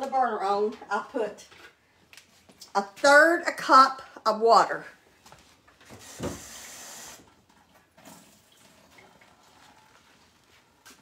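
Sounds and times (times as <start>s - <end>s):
kitchen tap running: 6.0s - 9.5s.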